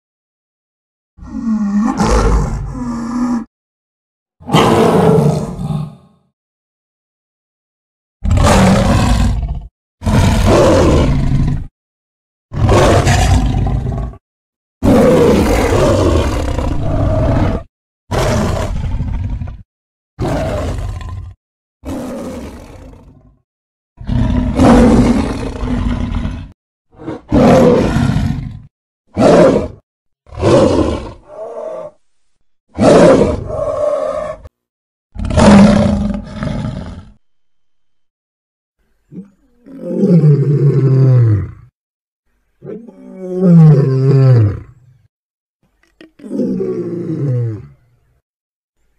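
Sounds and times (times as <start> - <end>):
big cat roars and growls: 1.2 - 3.5, 4.4 - 6.3, 8.2 - 11.7, 12.5 - 14.2, 14.8 - 23.4, 24.0 - 32.0, 32.7 - 34.5, 35.1 - 37.2, 39.1 - 41.8, 42.6 - 44.8, 46.0 - 47.9.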